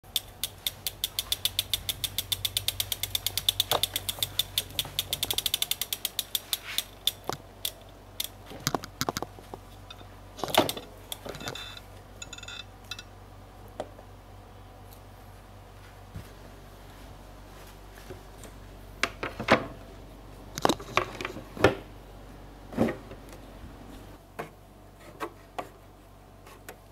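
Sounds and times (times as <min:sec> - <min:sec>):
bike freewheel ticking: 0:00.0 - 0:09.2.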